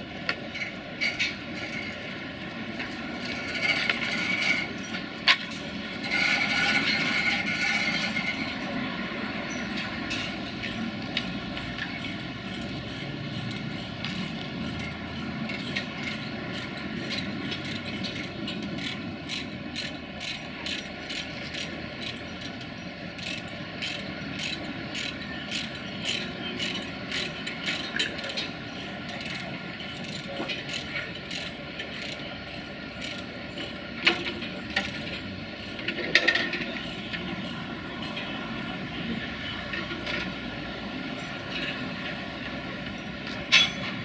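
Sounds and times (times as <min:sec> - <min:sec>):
ratchet clicking: 0:23.2 - 0:28.4.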